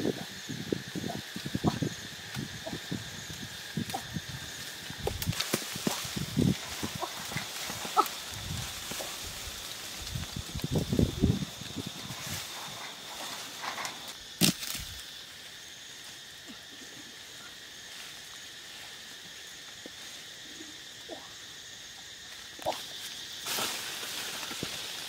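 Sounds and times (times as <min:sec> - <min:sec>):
branches and leaves rustling: 0:00.0 - 0:25.0
branch cracking: 0:03.8 - 0:11.1, 0:13.4 - 0:15.1.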